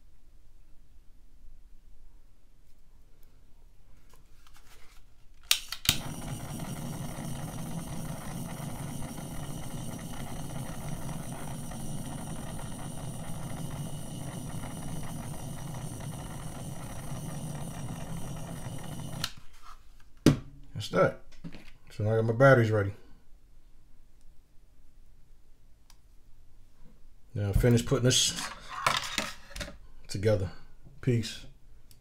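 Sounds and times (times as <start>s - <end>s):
torch igniter click: 5.5s - 19.4s
torch flame hissing: 5.9s - 19.4s.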